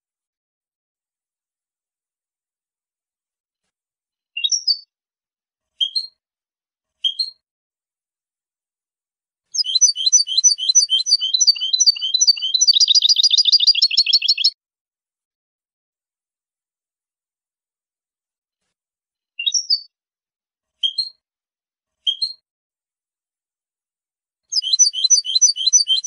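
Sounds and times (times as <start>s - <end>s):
bird chirping and trilling: 4.4s - 4.8s, 9.6s - 14.5s, 19.4s - 19.9s, 24.5s - 26.0s.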